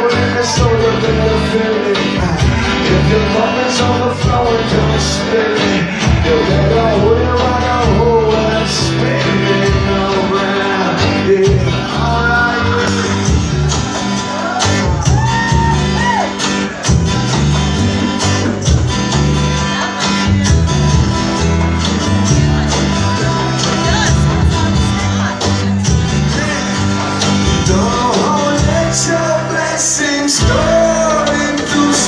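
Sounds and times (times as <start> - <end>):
man singing: 0.0 - 16.9, 17.8 - 32.0
acoustic guitar strumming: 0.0 - 32.0.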